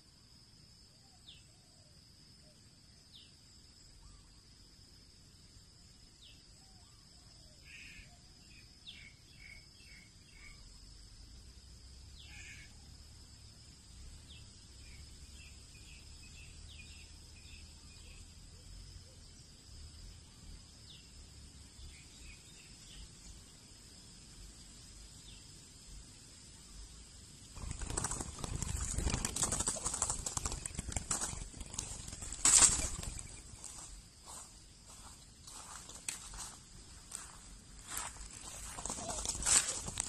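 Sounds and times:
high insect drone: 0:00.0 - 0:40.0
small birds chirping: 0:26.6 - 0:40.0.

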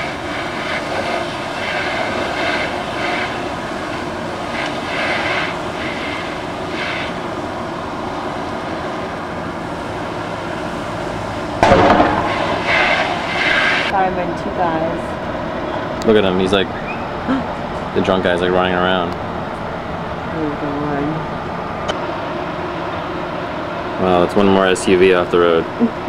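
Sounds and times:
fire engine diesel drone: 0:00.0 - 0:26.0
loud bang: 0:11.6 - 0:14.0.

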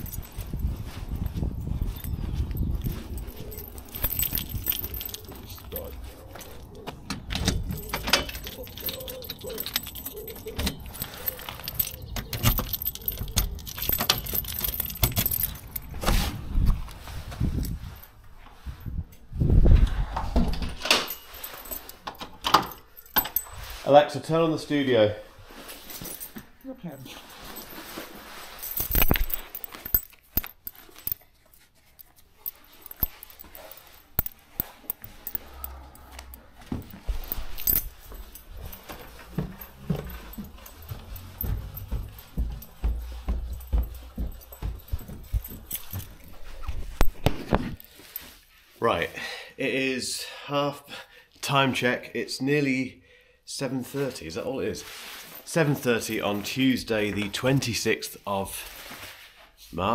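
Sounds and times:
keys jangling: 0:00.0 - 0:16.1, 0:20.7 - 0:23.7, 0:25.8 - 0:48.4
key clicking in lock: 0:06.6 - 0:15.8
shoes knocking on carpet: 0:38.5 - 0:46.3.

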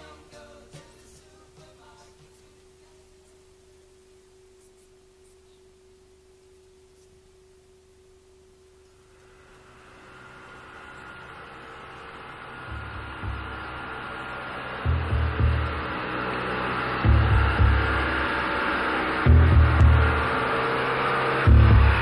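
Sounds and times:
faint steady tone: 0:02.5 - 0:22.0
low hum: 0:02.7 - 0:22.0
hissy high tone: 0:08.9 - 0:22.0.

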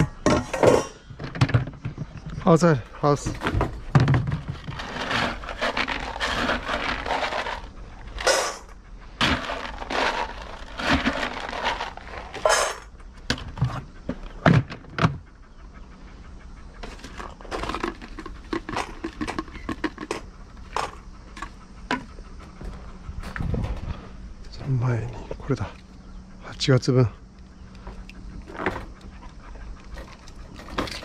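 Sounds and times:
cup scooping kibble: 0:04.6 - 0:12.8, 0:16.9 - 0:21.5.

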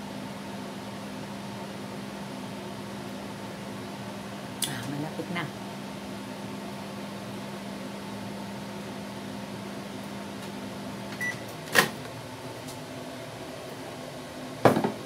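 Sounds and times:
microwave oven humming: 0:00.0 - 0:15.0
microwave beep: 0:11.2 - 0:11.5.

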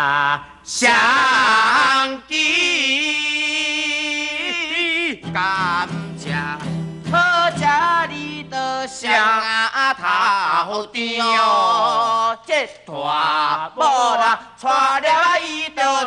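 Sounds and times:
men singing folk song: 0:00.0 - 0:16.0
strummed acoustic guitar: 0:04.5 - 0:08.7.

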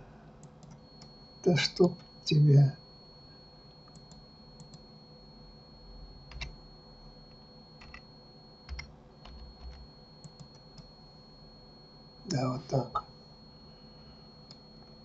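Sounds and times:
computer keyboard clicks: 0:00.4 - 0:00.8, 0:03.9 - 0:04.8, 0:06.3 - 0:06.5, 0:07.8 - 0:08.0, 0:08.7 - 0:10.9
faint high-pitched tone: 0:00.6 - 0:15.0.

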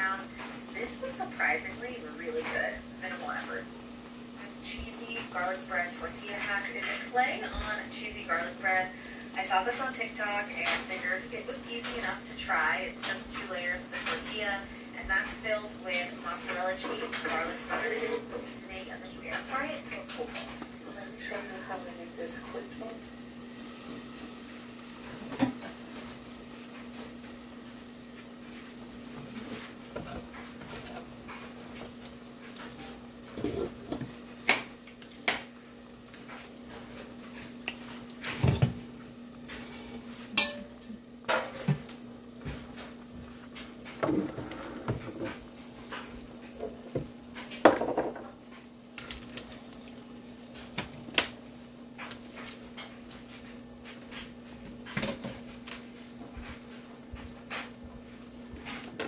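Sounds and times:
sausage sizzling in a skillet: 0:00.0 - 0:59.0
dishes and utensils clinking: 0:40.3 - 0:41.8.

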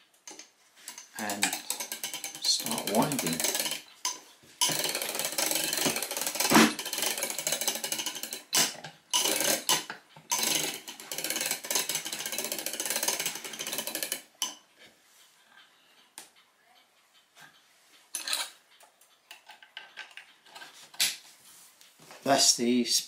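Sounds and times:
spring winder clicking rapidly: 0:00.3 - 0:14.5.

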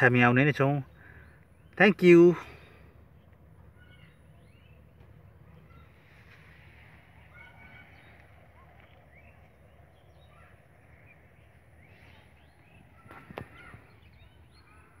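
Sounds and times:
small birds chirping: 0:00.0 - 0:15.0
low steady rumble: 0:02.5 - 0:13.0.

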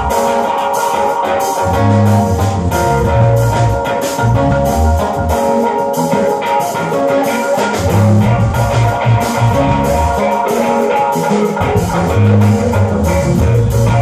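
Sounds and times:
low bass notes: 0:00.0 - 0:00.4, 0:01.6 - 0:06.2, 0:07.6 - 0:10.5, 0:11.1 - 0:14.0
drum kit with cymbals: 0:00.0 - 0:14.0
electric guitar: 0:00.0 - 0:14.0
keyboard: 0:00.0 - 0:14.0.

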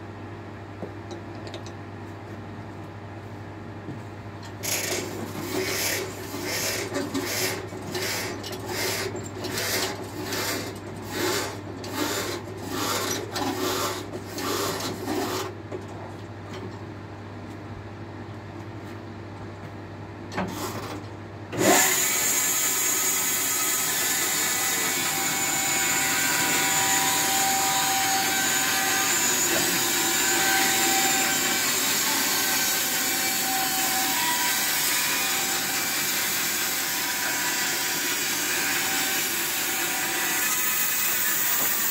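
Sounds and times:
band saw blade cutting log: 0:04.6 - 0:15.6, 0:21.6 - 0:41.9.

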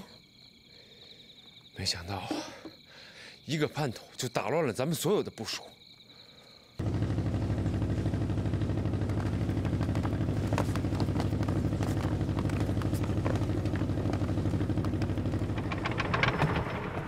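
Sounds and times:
motorboat engine running: 0:06.8 - 0:16.5
faint clicks and clatter: 0:08.9 - 0:17.0.

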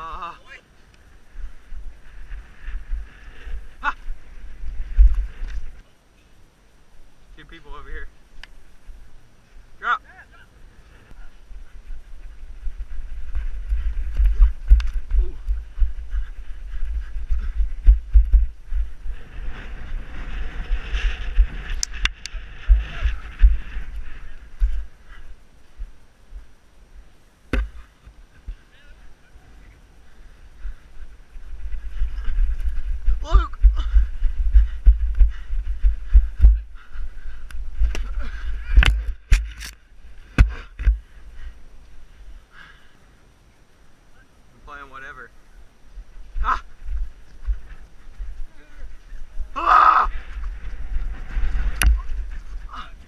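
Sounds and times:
wind buffeting microphone: 0:01.0 - 0:05.8, 0:10.6 - 0:26.6, 0:27.6 - 0:42.4, 0:45.4 - 0:53.0
heavy footfalls: 0:33.1 - 0:36.8, 0:40.3 - 0:41.0
sharp clicks of camera moving: 0:38.8 - 0:39.8.

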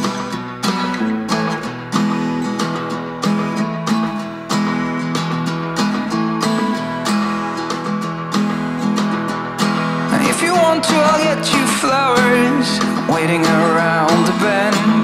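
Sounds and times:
strummed acoustic guitar: 0:00.0 - 0:15.0
person singing: 0:09.9 - 0:15.0.

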